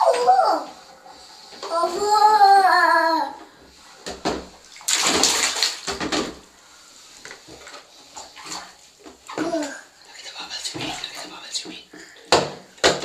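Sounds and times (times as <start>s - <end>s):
child splashing bathwater: 0.0s - 3.4s, 4.1s - 6.5s, 7.4s - 13.0s
toddler vocalizing: 1.7s - 3.4s.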